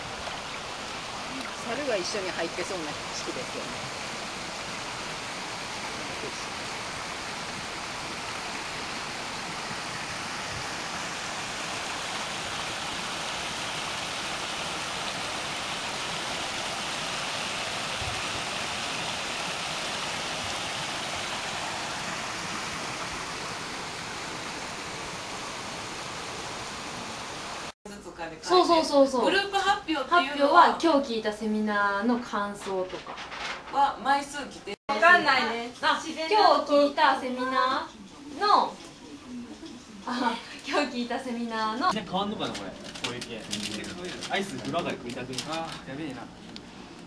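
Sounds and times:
stream rushing over rocks: 0.0s - 27.7s.

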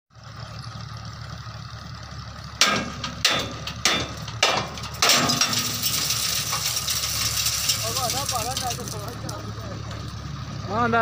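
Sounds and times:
diesel truck engine idling: 0.1s - 11.0s.

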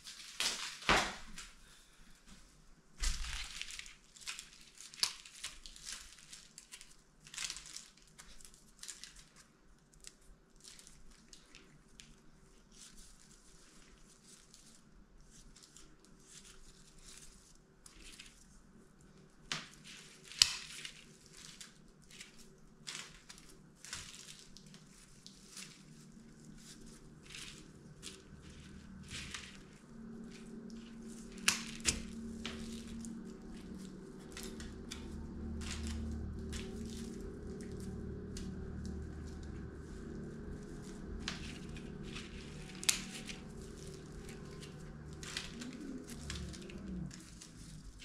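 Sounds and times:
craft materials rustling and crinkling: 0.0s - 48.0s
steady low hum: 24.6s - 48.0s.

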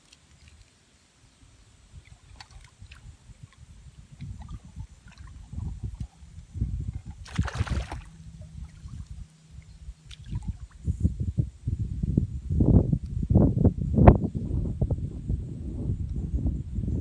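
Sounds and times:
wind rumble on microphone: 1.3s - 17.0s
fish splashing at water surface: 2.0s - 6.2s, 7.0s - 9.2s.

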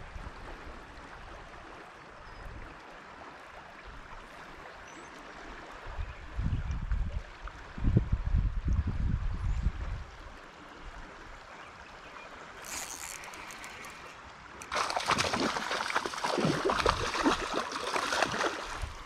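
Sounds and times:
flowing river water hiss: 9.9s - 19.0s
fish splashing and thrashing: 12.6s - 19.0s.

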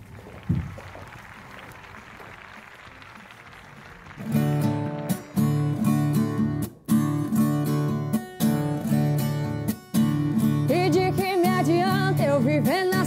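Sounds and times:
strummed acoustic guitar: 4.2s - 13.0s
person singing: 10.7s - 13.0s.

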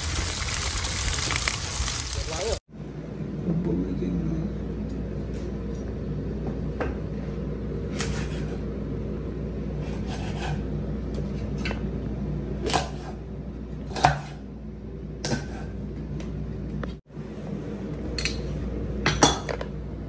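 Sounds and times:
low background hum: 1.6s - 20.0s
knife chopping on cutting board: 13.9s - 14.4s.

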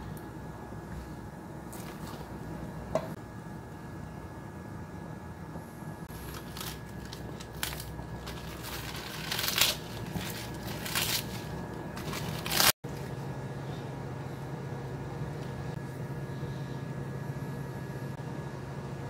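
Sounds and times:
steady low hum: 0.0s - 19.0s
cabbage leaves tearing: 6.1s - 12.8s.

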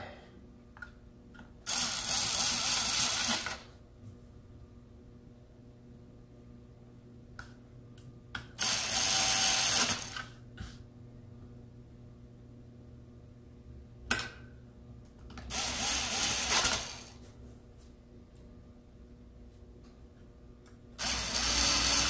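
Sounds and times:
electric screwdriver running: 1.7s - 3.7s, 8.6s - 10.2s, 15.5s - 17.2s, 21.0s - 22.0s.

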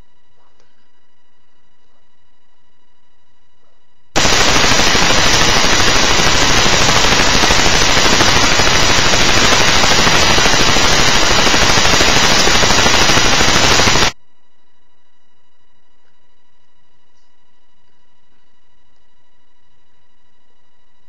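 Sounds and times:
harsh digital static: 4.2s - 14.2s.

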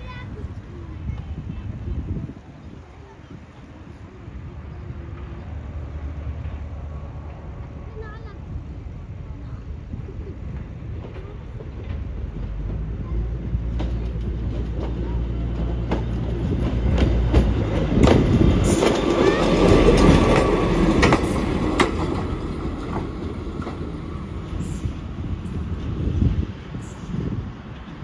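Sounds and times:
wheels clicking over rail joints: 10.4s - 26.0s.

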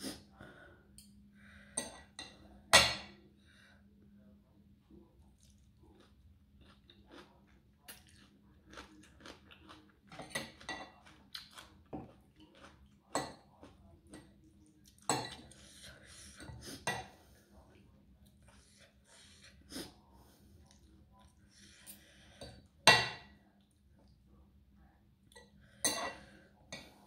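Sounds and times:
person chewing: 5.3s - 16.4s.

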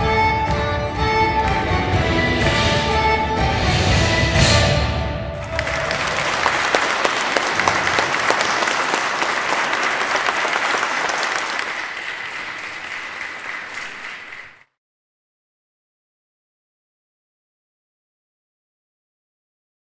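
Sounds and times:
audience applauding: 5.4s - 14.7s.

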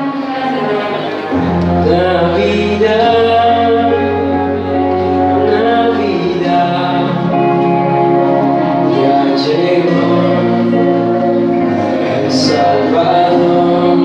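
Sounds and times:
instrumental accompaniment: 0.0s - 14.0s
man singing into a microphone: 0.0s - 14.0s.

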